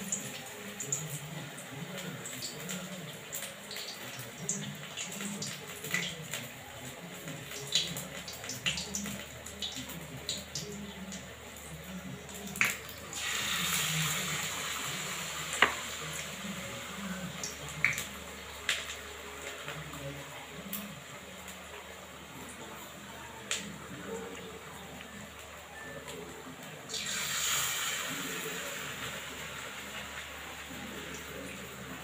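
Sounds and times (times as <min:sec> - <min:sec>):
steady hiss: 0:26.9 - 0:32.0.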